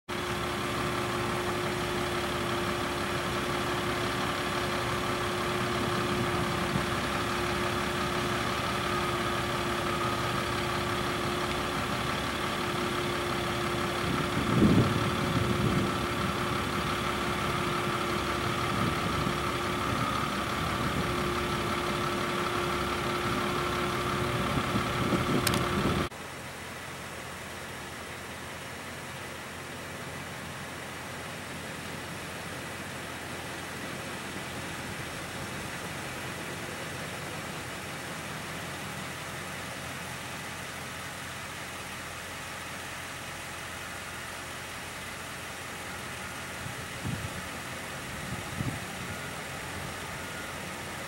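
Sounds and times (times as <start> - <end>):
engine idling: 0.1 - 51.0
sharp click: 25.4 - 25.7.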